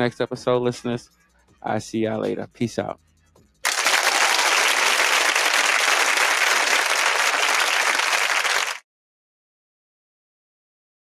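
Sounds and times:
crowd applause: 3.7 - 8.8.

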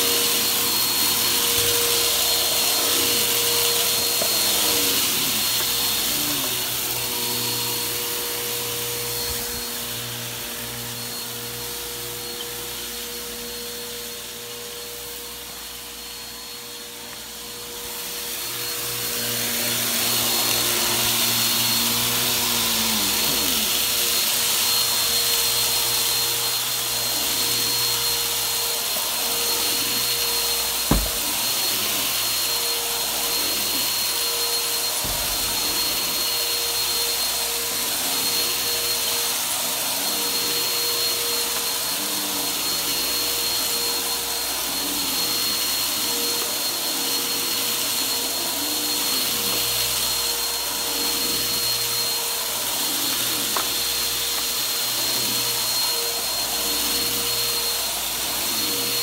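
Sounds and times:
vacuum cleaner on carpet: 0.0 - 59.0
sharp knock: 30.9 - 31.2.

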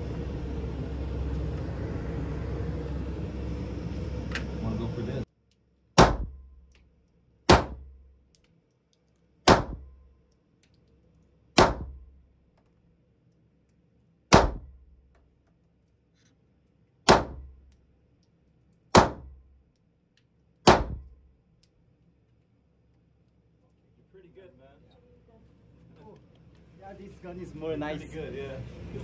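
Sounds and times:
pistol shots: 6.0 - 6.4, 7.5 - 8.0, 9.4 - 9.9, 11.6 - 12.0, 14.3 - 14.8, 17.1 - 17.5, 18.9 - 19.4, 20.6 - 21.2.

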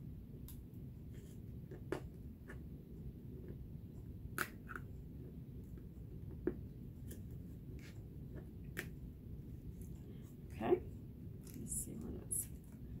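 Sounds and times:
low room hum: 0.0 - 13.0
hands clicking and tapping pieces: 4.3 - 4.9.

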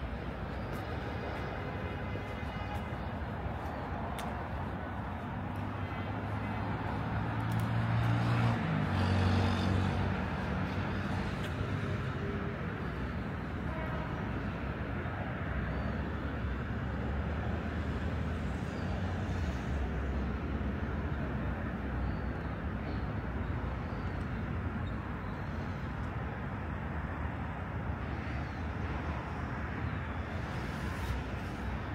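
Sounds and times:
road traffic rumble: 0.0 - 31.9.

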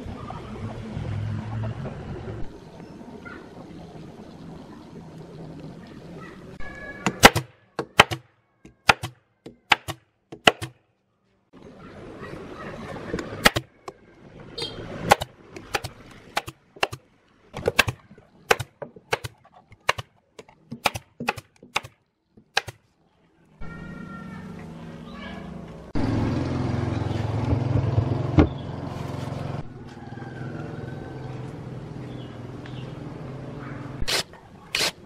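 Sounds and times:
pneumatic staple gun firing: 34.0 - 35.0.

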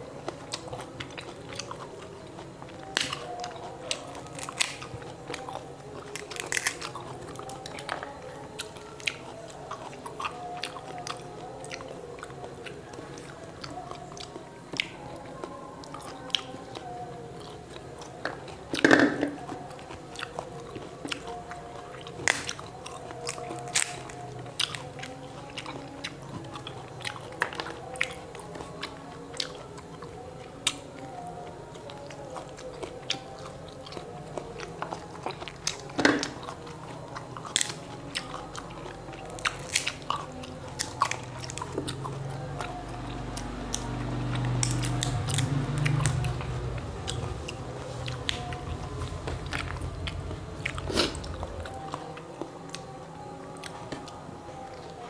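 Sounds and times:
chewing and biting: 0.0 - 55.0
fruit shells cracking: 2.8 - 8.1, 18.2 - 19.5, 39.3 - 40.2.

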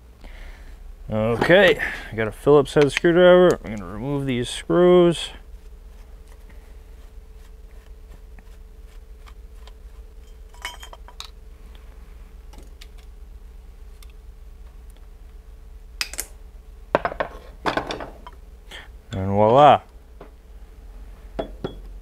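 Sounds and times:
steady low hum: 0.0 - 22.0
metal parts set down: 10.3 - 11.3.

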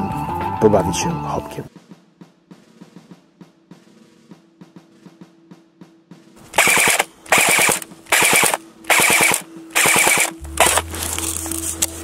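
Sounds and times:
airsoft gun firing bursts: 6.5 - 10.8.

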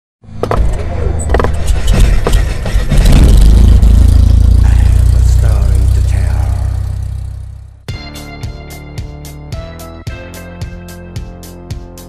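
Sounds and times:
deep steady rumble: 0.4 - 7.9
sharp cinematic hits: 1.5 - 7.9.

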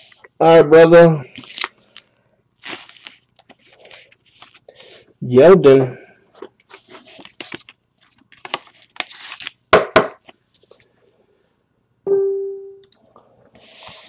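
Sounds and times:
card rustling in plastic holder: 6.4 - 9.6.

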